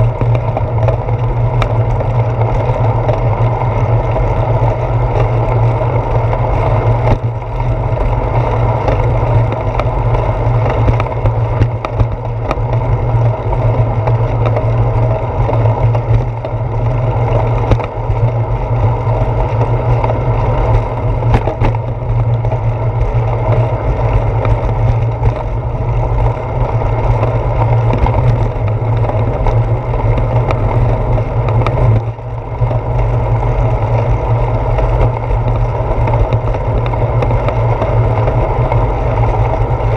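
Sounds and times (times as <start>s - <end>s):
bicycle rolling over concrete: 0.0s - 39.9s
wind rumble: 0.0s - 39.9s.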